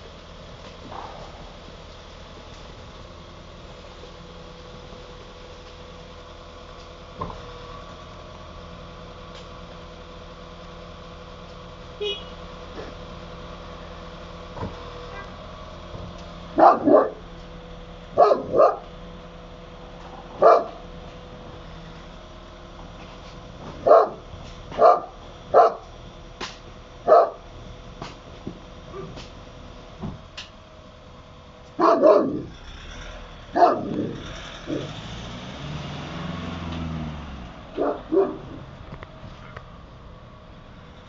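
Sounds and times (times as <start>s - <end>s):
dog barking: 16.6s - 17.2s, 18.2s - 18.9s, 20.4s - 20.8s, 23.8s - 25.8s, 27.1s - 27.4s, 31.8s - 32.5s, 33.5s - 34.9s, 37.8s - 38.6s.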